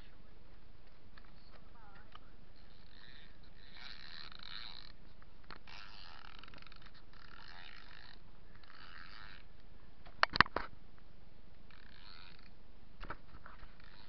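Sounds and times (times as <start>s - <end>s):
toy car wheels whirring on concrete: 0.8s - 9.7s, 11.6s - 14.0s.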